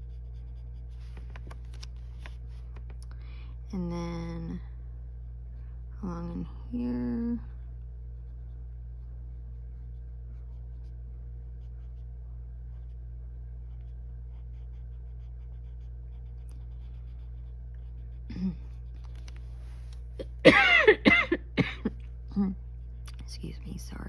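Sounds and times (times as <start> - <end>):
pencil scratching on paper: 0.0 - 1.2, 7.5 - 11.0, 11.6 - 12.1, 13.6 - 19.0
steady low hum: 0.0 - 24.0.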